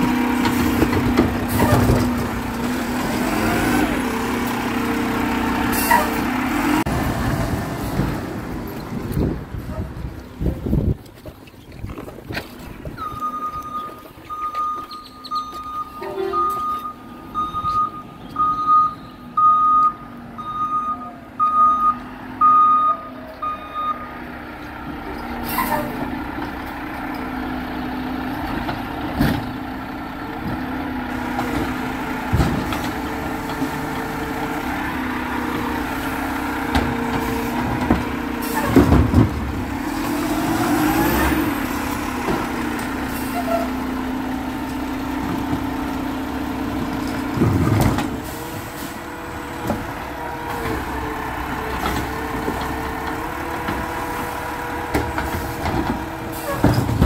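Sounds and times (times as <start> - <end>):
truck engine running: 0.0 - 57.0
truck reversing alarm beeping: 12.9 - 24.3.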